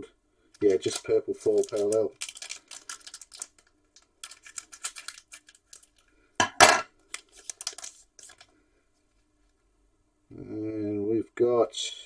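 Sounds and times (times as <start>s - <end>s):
foil wrapper crinkling: 0.6s - 6.1s, 7.0s - 8.6s.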